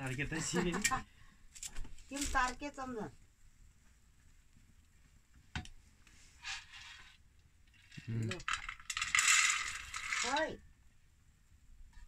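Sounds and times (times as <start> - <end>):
corn kernels rattling in metal pot: 7.8 - 10.6.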